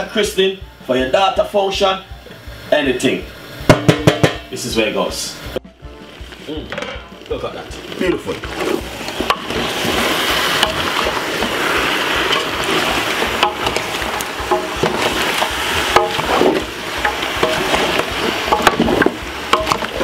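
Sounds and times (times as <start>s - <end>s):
food sizzling: 0.0s - 20.0s
spoon knocking against pot: 3.7s - 4.5s, 13.4s - 20.0s
wooden spoon scraping metal pot: 6.2s - 20.0s.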